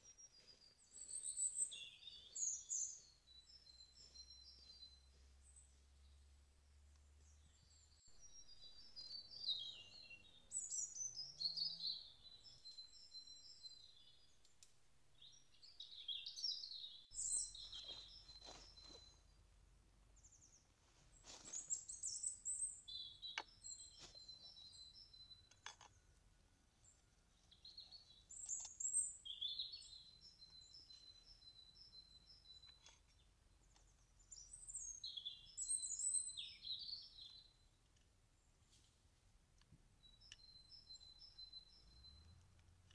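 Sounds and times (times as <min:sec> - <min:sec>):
songbird chirping: 0:00.0 - 0:42.9
faint sharp clicks: 0:14.4 - 0:14.8, 0:39.5 - 0:40.5.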